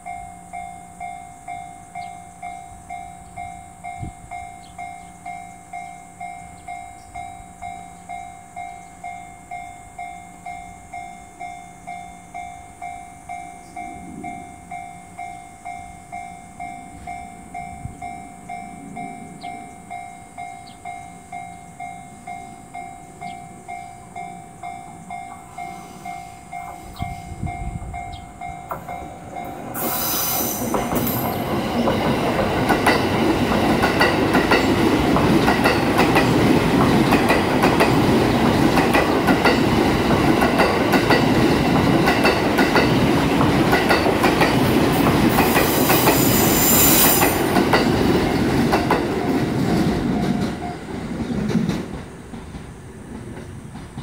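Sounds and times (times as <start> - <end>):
train rolling rumble: 0.0 - 54.0
shrill train screech: 25.1 - 32.1, 45.3 - 47.6.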